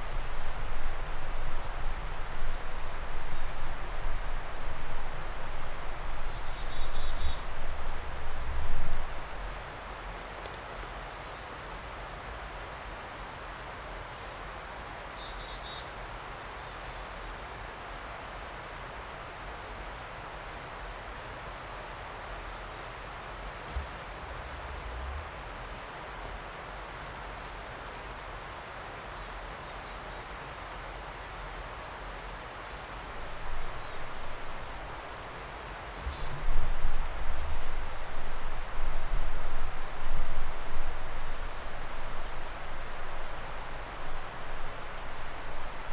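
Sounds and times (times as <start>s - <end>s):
wind buffeting microphone: 0.0s - 9.7s, 23.6s - 25.9s, 33.2s - 45.9s
songbird singing: 0.0s - 28.2s, 31.5s - 45.9s
steady background hiss: 0.0s - 45.9s.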